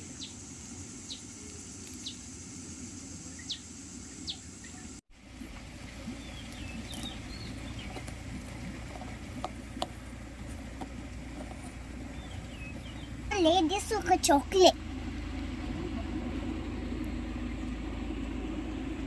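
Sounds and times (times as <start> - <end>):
steady high hiss: 0.0 - 8.4
birds chirping: 0.0 - 17.8.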